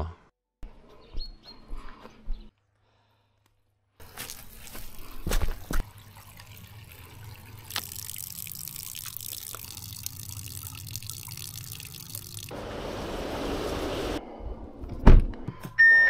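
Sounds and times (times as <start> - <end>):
water running into bottle: 4.0 - 12.5
water trickling from spring: 4.0 - 12.5.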